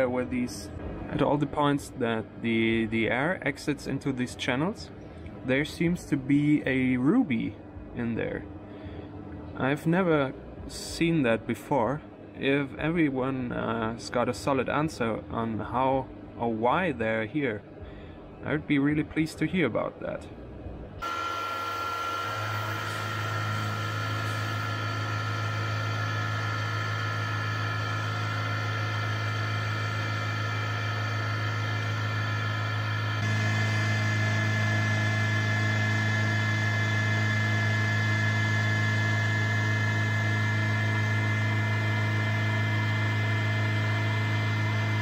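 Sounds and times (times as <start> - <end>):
milling machine humming and whining: 21.0 - 45.0.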